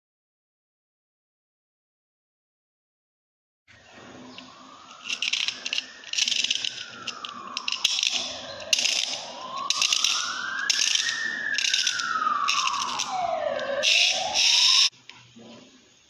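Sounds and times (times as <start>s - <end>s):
smooth tone rising and falling: 3.8s - 14.9s
clockwork ratchet clicking: 4.9s - 13.2s.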